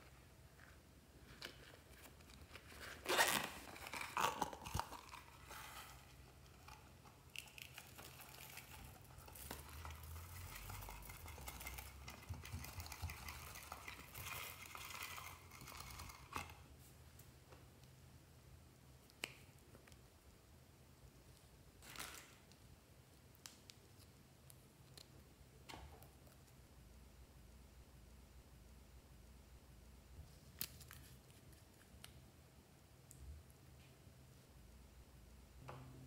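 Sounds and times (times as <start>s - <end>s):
plastic pouch crinkling: 1.4s - 16.6s.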